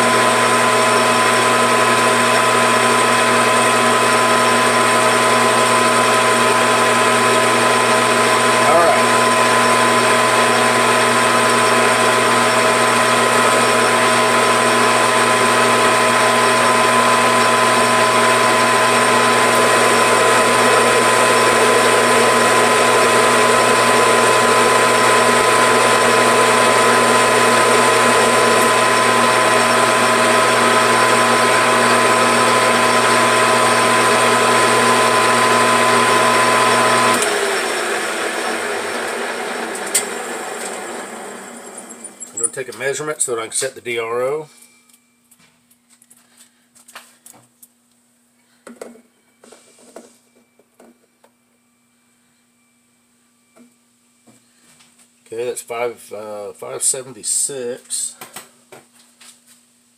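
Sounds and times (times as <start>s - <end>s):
lathe cutting metal: 0.0s - 43.7s
metal lathe motor whine: 0.0s - 43.7s.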